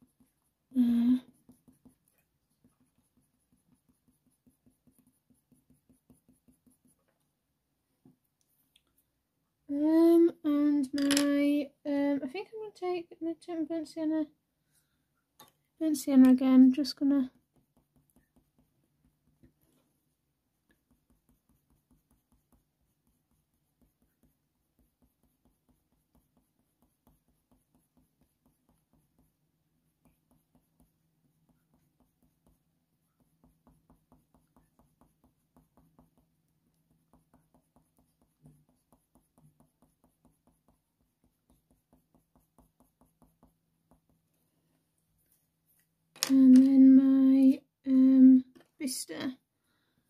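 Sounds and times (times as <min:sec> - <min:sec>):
pencil scratching on paper: 0:00.0 - 0:07.2, 0:16.6 - 0:44.4.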